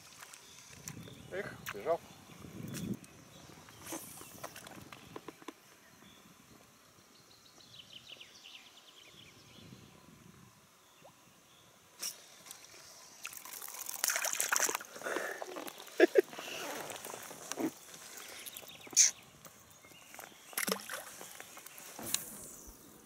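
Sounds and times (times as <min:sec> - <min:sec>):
fish splashing in water: 0:13.2 - 0:17.5, 0:20.5 - 0:21.6.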